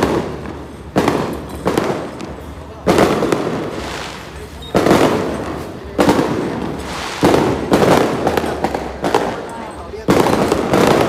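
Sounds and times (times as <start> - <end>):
firecrackers bursting: 0.0 - 11.0.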